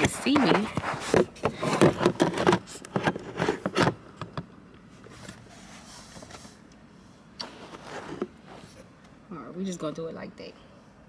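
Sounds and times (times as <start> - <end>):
phone handling rubbing and knocks: 0.0 - 4.5.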